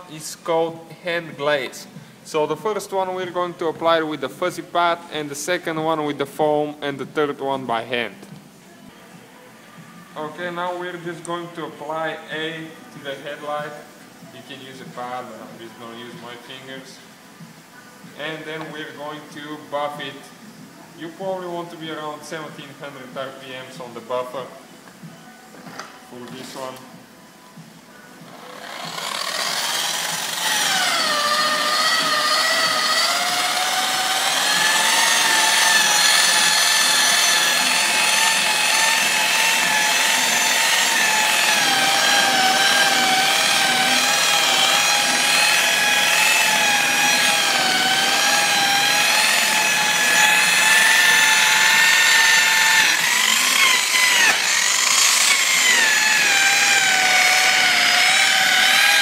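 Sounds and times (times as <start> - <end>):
rotary polisher motor whine: 28.3 - 59.0.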